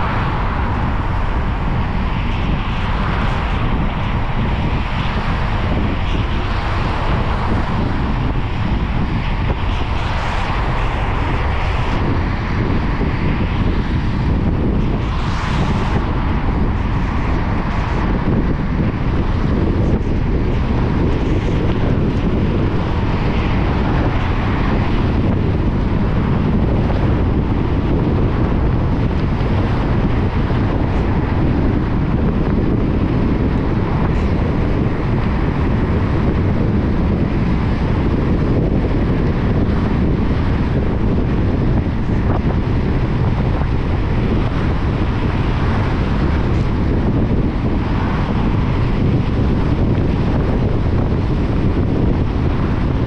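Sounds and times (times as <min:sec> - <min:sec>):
rain: 0:00.0 - 0:13.9
tyres hissing on wet road: 0:00.0 - 0:14.0
car driving low rumble: 0:00.0 - 0:53.0.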